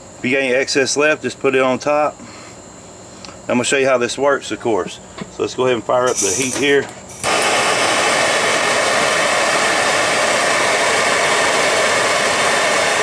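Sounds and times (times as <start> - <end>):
propane torch hissing: 6.1 - 13.0.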